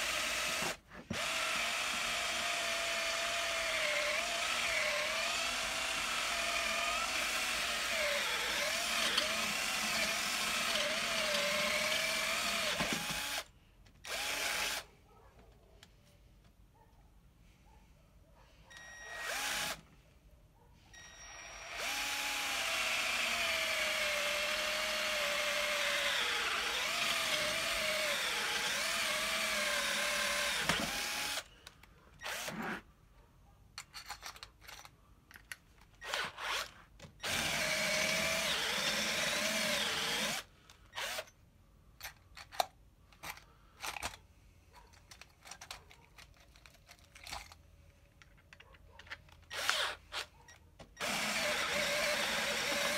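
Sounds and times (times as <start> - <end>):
electric drill boring metal: 0.0 - 13.5, 14.1 - 14.8, 18.8 - 19.8, 21.0 - 31.5, 36.0 - 41.3, 49.5 - 50.2, 51.0 - 52.9.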